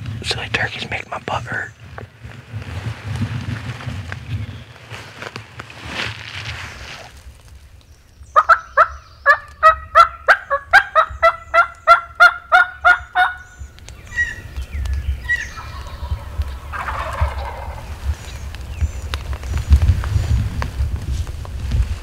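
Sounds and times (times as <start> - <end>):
turkey yelping: 8.4 - 13.4, 15.2 - 17.9.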